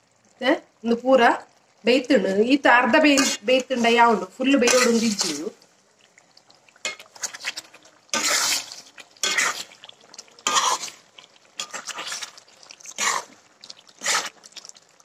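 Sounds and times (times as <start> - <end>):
spoon scraping a cooking pot: 3.1 - 5.4, 6.8 - 14.5.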